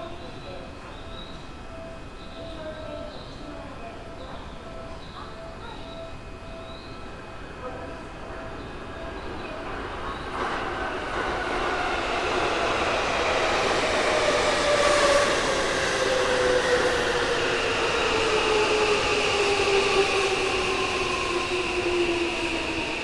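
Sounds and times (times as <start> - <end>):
train wheels rumbling on rails: 8.1 - 23.0.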